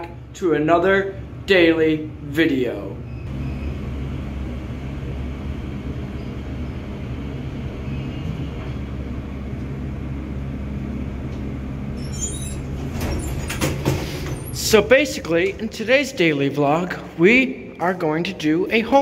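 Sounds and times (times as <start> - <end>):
elevator car hum and rumble: 0.0 - 17.2.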